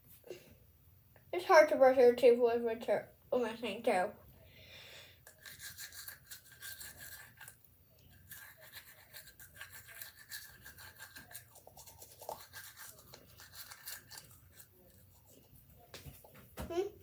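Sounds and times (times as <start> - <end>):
toothbrush scrubbing teeth: 5.2 - 15.8.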